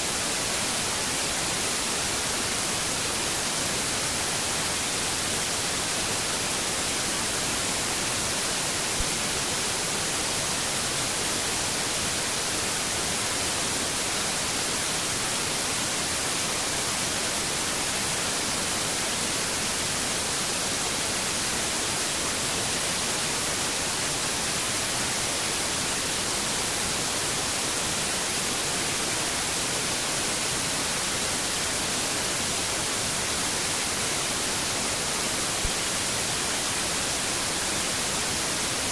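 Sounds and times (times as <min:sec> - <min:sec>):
static hiss: 0:00.0 - 0:38.9.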